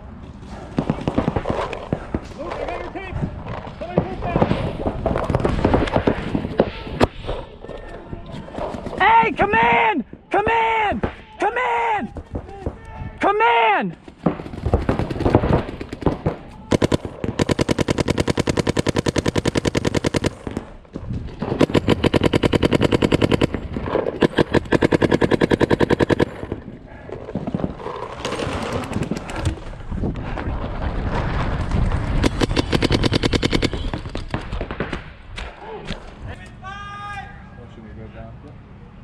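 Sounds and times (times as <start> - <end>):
paintball markers firing: 21.4 - 26.6, 32.1 - 35.5.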